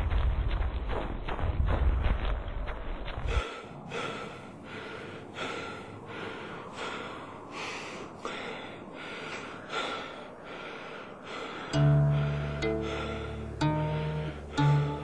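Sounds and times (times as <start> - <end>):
man panting heavily: 3.2 - 15.0.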